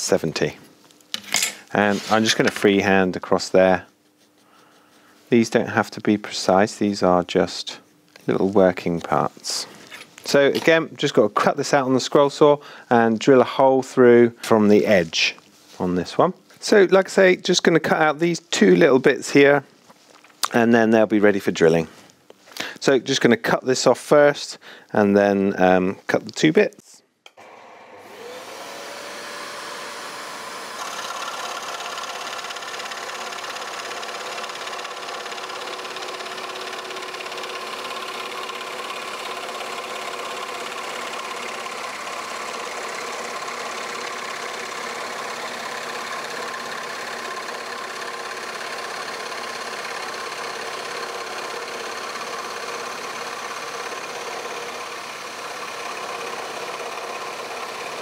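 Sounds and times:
scroll saw cutting plywood: 0:27.3 - 0:58.0.

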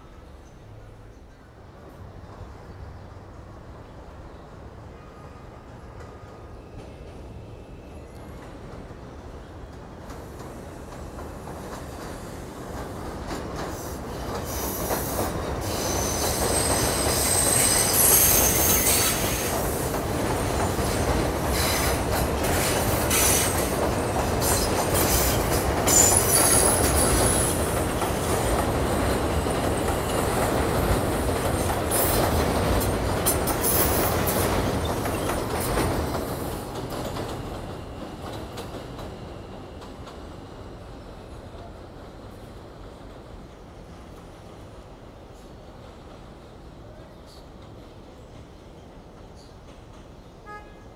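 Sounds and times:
subway train rumbling past: 0:00.0 - 0:50.9
wheel-flange squeal: 0:14.5 - 0:19.6, 0:24.4 - 0:27.6, 0:33.6 - 0:38.5.

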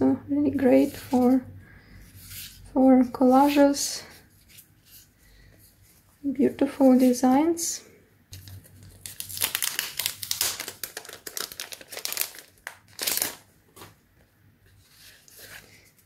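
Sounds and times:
cellophane packaging crinkling: 0:08.4 - 0:13.9.

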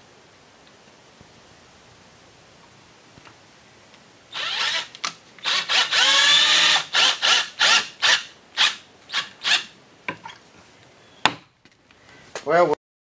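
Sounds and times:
cordless drill driving screws: 0:04.3 - 0:09.7.

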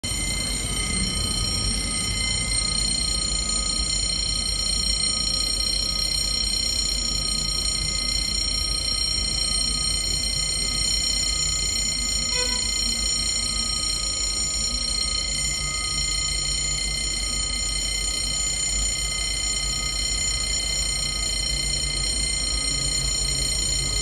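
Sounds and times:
level crossing warning bell: 0:00.0 - 0:24.0.

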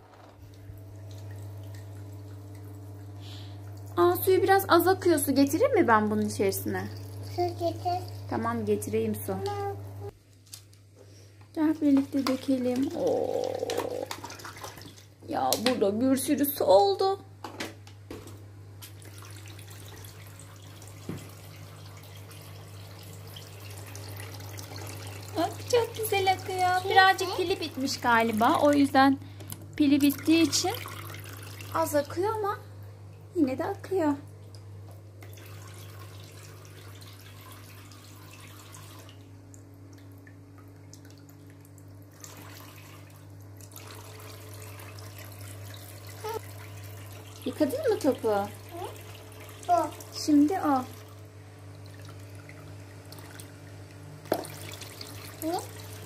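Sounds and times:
water trickling into basin: 0:00.4 - 0:09.2, 0:12.2 - 0:15.2, 0:19.0 - 0:29.4, 0:30.0 - 0:32.1, 0:34.3 - 0:56.0
toy faucet trickling water: 0:06.1 - 0:08.4, 0:12.6 - 0:14.1, 0:45.0 - 0:50.0, 0:54.3 - 0:56.0.

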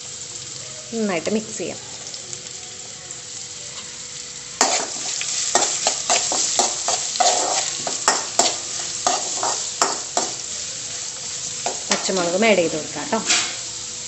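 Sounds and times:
food sizzling in hot oil: 0:00.0 - 0:14.0
metal spoon scraping a pan: 0:04.6 - 0:10.5.

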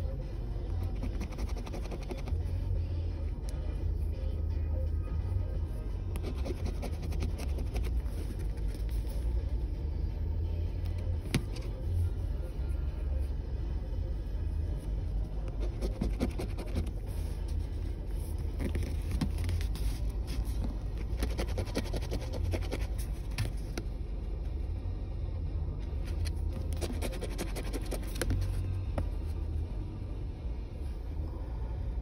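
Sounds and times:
coin scratching lottery ticket: 0:00.9 - 0:02.4, 0:06.2 - 0:08.9, 0:15.6 - 0:17.0, 0:21.0 - 0:23.2, 0:26.1 - 0:28.4
low rumble of car: 0:02.1 - 0:32.0.

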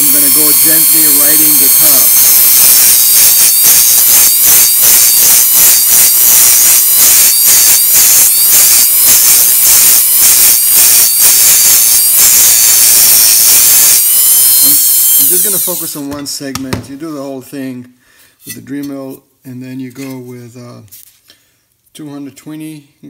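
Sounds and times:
rotary tool sanding ceramic: 0:00.0 - 0:16.1.

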